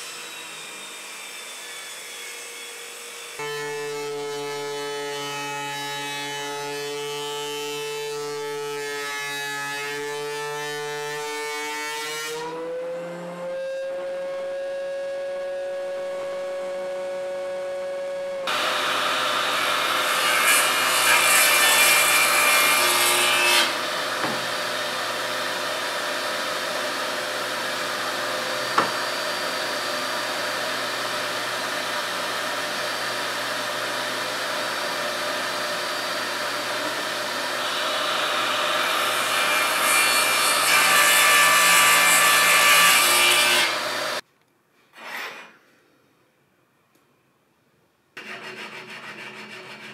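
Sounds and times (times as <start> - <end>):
saw cutting through wood: 0.0 - 17.5, 18.4 - 44.2, 48.2 - 49.9.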